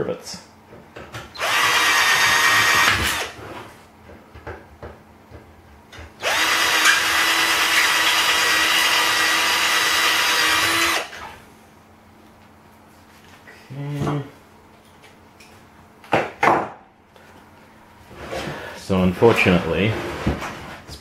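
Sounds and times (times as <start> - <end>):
power drill whining: 1.4 - 3.4, 6.2 - 11.3.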